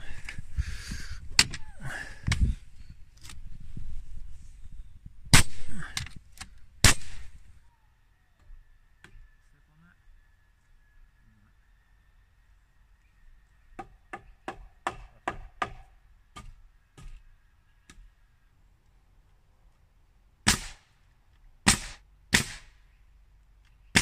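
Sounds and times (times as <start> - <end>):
hammer driving nails into wood: 13.8 - 17.2.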